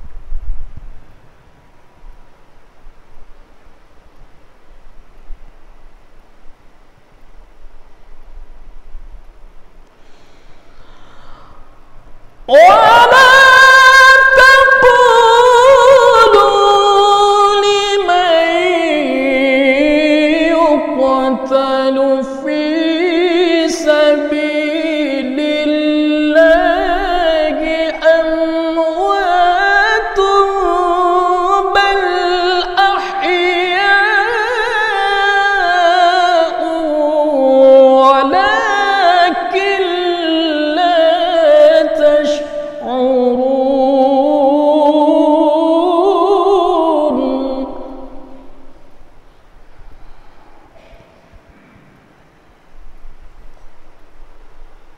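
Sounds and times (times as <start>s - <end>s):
breaths: 10.0s - 12.1s, 49.2s - 52.0s
man chanting melodic recitation: 12.5s - 48.4s.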